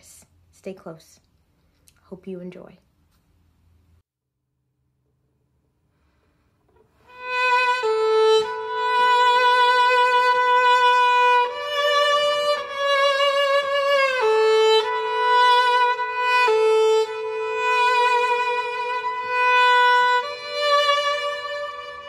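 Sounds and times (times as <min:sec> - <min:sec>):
solo viola melody: 0:06.9 - 0:22.0.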